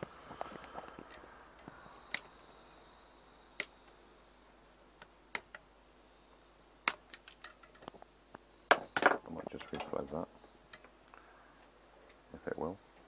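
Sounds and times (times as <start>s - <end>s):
faint clicks: 0.4s - 2.3s.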